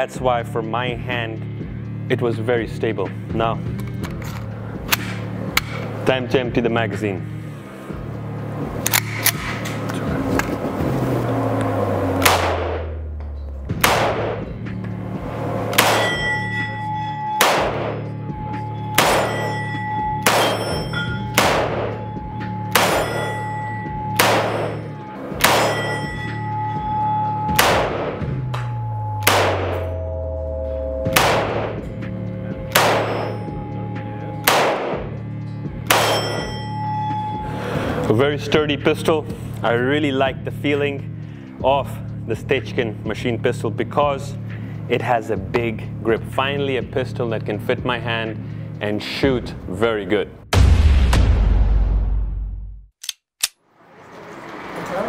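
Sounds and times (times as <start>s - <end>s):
pistol gunshots ringing indoors: 12.2s - 13.1s, 13.8s - 14.5s, 15.7s - 16.6s, 17.2s - 18.2s, 18.8s - 26.2s, 27.4s - 28.4s, 29.2s - 30.0s, 31.1s - 32.0s, 32.6s - 33.6s, 34.4s - 35.2s, 35.8s - 36.5s.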